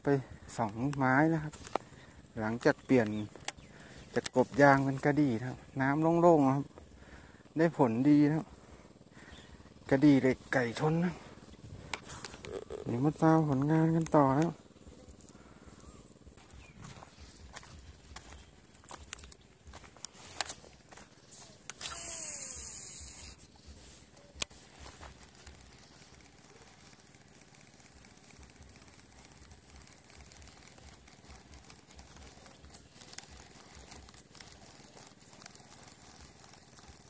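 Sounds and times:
fishing reel spool whining: 0.0 - 37.0
faint handling noise: 9.9 - 21.8
sharp click: 21.4 - 22.6.

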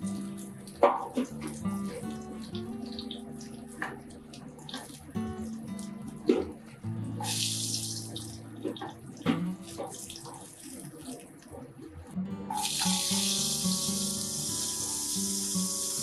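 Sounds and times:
hot oil sizzling in a wok: 7.2 - 8.2, 12.6 - 16.0.

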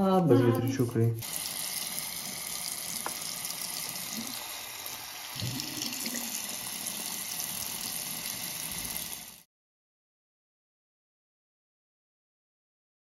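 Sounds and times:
tap water running into sink: 0.4 - 9.4.

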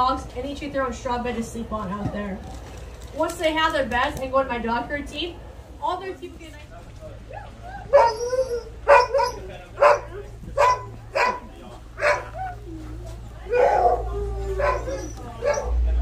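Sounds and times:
dog howling call: 7.5 - 15.8
dogs barking: 7.6 - 15.9.

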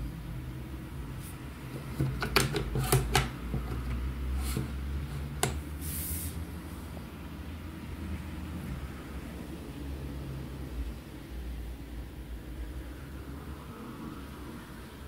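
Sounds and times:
light handling clicks and taps: 1.8 - 5.6.

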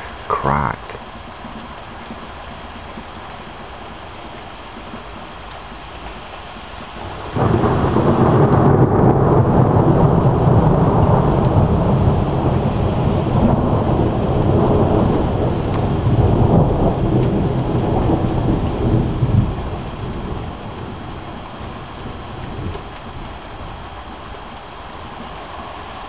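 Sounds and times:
heavy rain: 0.0 - 26.0
low rumble of thunder: 6.1 - 25.2
thunderclap: 7.0 - 21.0.

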